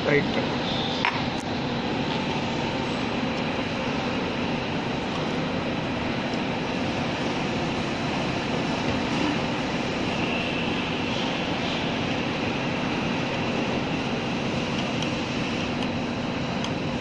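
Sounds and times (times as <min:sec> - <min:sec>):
machine hum and hiss: 0:00.0 - 0:17.0.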